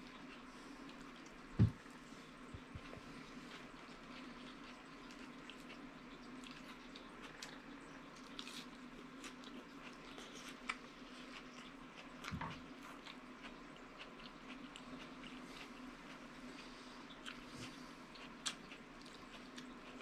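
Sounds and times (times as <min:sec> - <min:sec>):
faint steady hum: 0:00.0 - 0:20.0
soft low thump: 0:01.6 - 0:01.8
chewing mouth sounds: 0:02.6 - 0:20.0.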